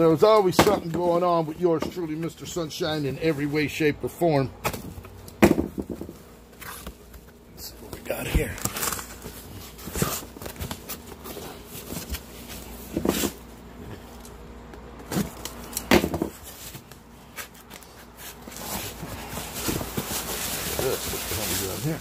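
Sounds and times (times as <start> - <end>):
knocks on cardboard box: 4.7 - 6.2, 15.9 - 16.4
cardboard rustling and scraping: 4.8 - 13.5, 15.0 - 22.0.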